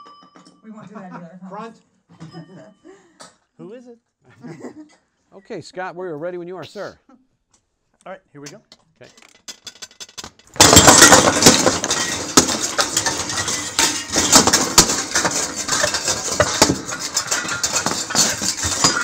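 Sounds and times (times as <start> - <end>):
metal scraps clattering: 9.0 - 19.0.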